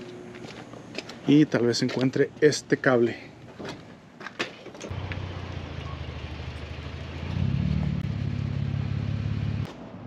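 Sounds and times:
vehicle engine revving: 4.9s - 9.7s.

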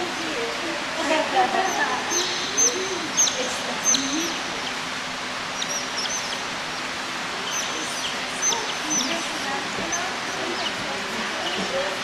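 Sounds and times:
low voices: 0.0s - 12.0s
otters chirping: 1.7s - 4.9s, 5.5s - 11.8s.

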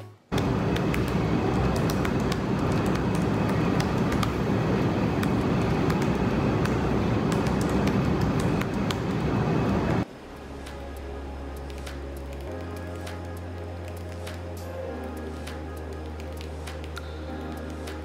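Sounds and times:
laptop keyboard typing: 0.3s - 10.0s, 11.7s - 18.0s
loud steady rumbling: 0.3s - 10.1s.

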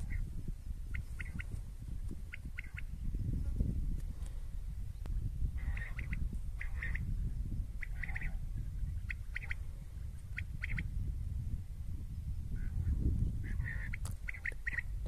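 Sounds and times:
wind rumble on microphone: 0.0s - 15.0s
quail calling: 0.9s - 1.6s, 2.3s - 3.0s, 5.6s - 7.1s, 7.8s - 9.7s, 10.3s - 10.9s, 12.6s - 15.0s.

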